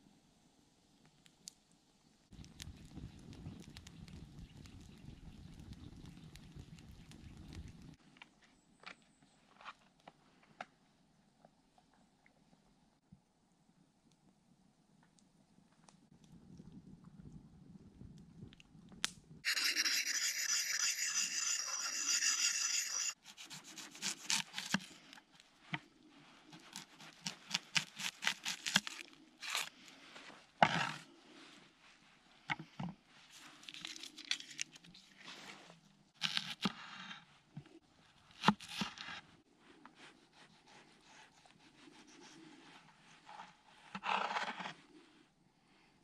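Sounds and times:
loud steady rasping: 0:19.4 - 0:24.4
blade cutting on wooden board: 0:19.4 - 0:24.7.

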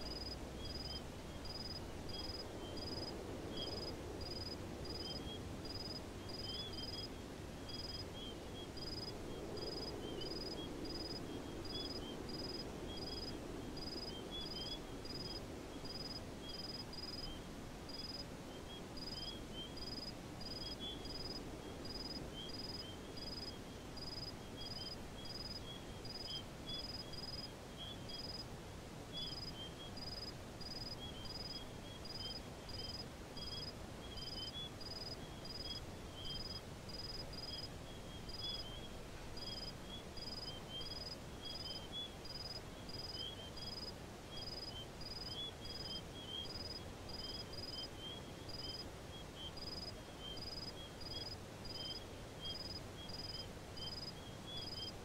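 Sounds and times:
faint twittering chirps: 0:00.0 - 0:28.5, 0:29.1 - 0:55.0
insect chirping in pulses: 0:29.2 - 0:48.8, 0:49.4 - 0:54.9.

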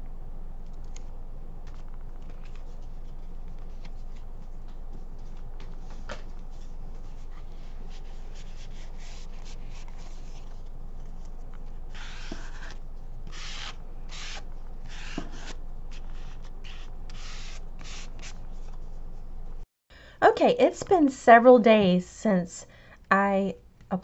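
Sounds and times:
hands rubbing paper: 0:01.7 - 0:18.8.

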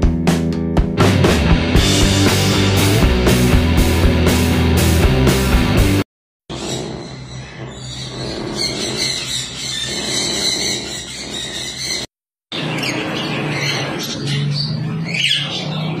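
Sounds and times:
parrots squawking and chirping: 0:06.5 - 0:16.0.

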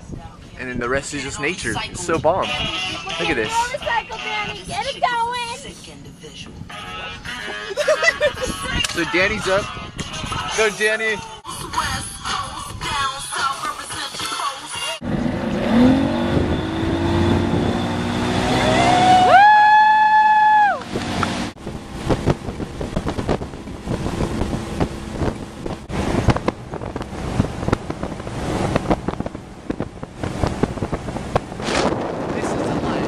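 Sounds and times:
wind buffeting microphone: 0:00.0 - 0:05.5, 0:08.2 - 0:10.5, 0:15.0 - 0:33.0
motorboat engine running: 0:15.0 - 0:19.3, 0:20.8 - 0:33.0.

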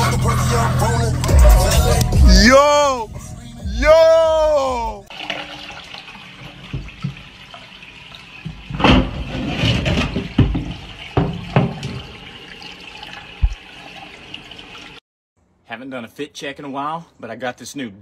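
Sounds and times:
toilet flushing: 0:05.1 - 0:15.0.

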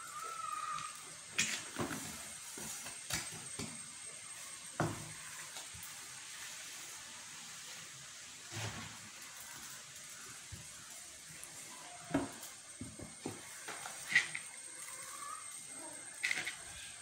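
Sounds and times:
faint gritty rustle: 0:05.1 - 0:17.0.

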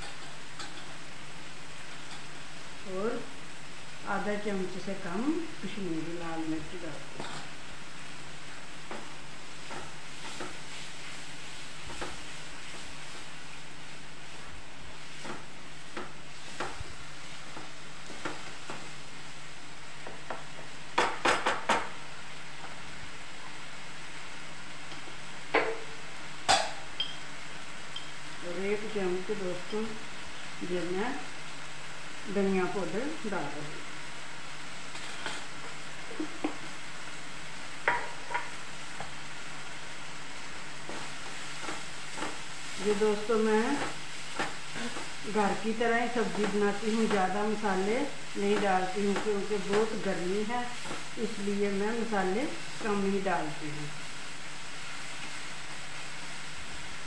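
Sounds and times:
food sizzling: 0:00.0 - 0:57.0
utensils clinking against pan: 0:07.2 - 0:07.5
spatula scraping a pan: 0:07.2 - 0:07.6, 0:34.9 - 0:36.7.

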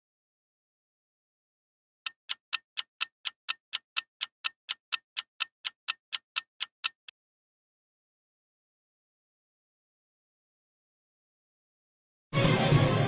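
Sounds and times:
clock ticking countdown: 0:02.1 - 0:07.1.

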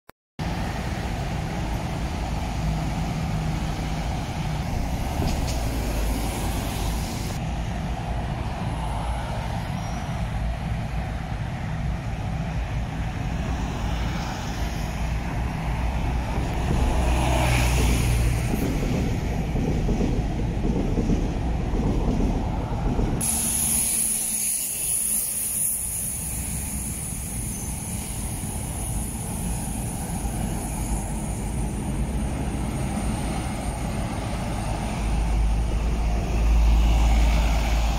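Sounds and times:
bus driving past: 0:00.4 - 0:37.9
bus engines rumbling: 0:00.4 - 0:37.9
roadside traffic: 0:00.4 - 0:37.9
air brakes hissing: 0:23.2 - 0:32.3.

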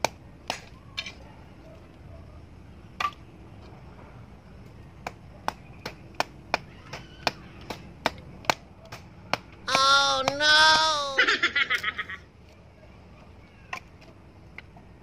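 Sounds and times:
blade chopping firewood: 0:00.0 - 0:01.2, 0:05.0 - 0:10.9
woman crying out: 0:09.7 - 0:11.6.

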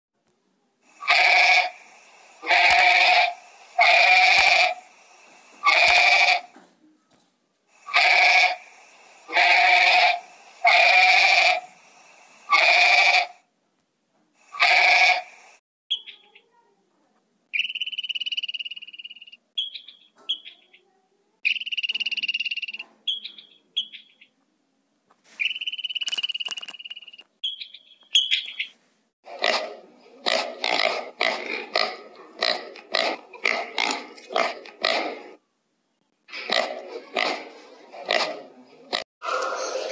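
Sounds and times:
goat bleating: 0:02.4 - 0:04.6, 0:05.6 - 0:06.5, 0:09.3 - 0:11.5
high thin squeaks and whistles: 0:21.4 - 0:24.0, 0:25.3 - 0:28.7.

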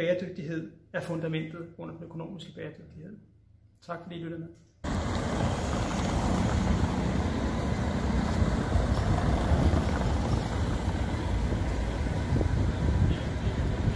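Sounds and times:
cars rolling on cobblestones: 0:04.8 - 0:13.9.

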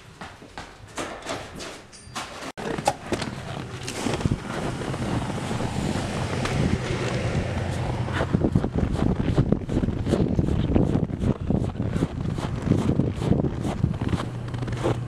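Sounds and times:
running footsteps: 0:00.0 - 0:15.0
wind buffeting microphone: 0:03.6 - 0:14.7.

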